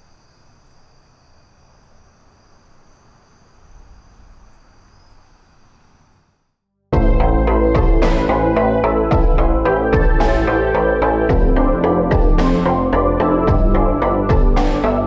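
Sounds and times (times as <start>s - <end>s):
crickets trilling: 0.0s - 6.5s.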